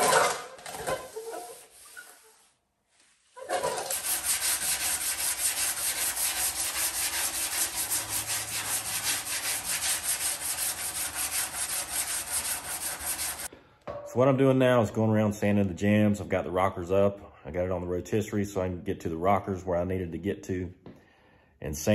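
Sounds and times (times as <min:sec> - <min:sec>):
sanding pad rubbing on metal: 0:01.0 - 0:02.4, 0:03.4 - 0:13.5.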